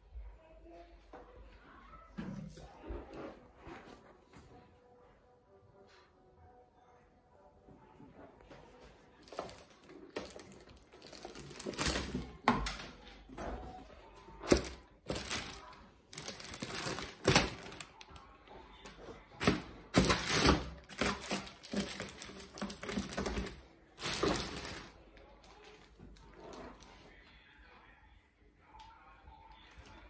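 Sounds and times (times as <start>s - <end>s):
plastic bag rustling: 9.2s - 12.5s, 14.4s - 18.2s, 19.4s - 26.9s.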